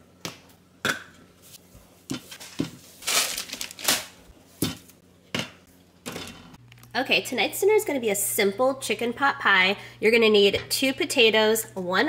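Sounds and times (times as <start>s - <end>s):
plastic packaging crinkling: 2.4s - 4.3s.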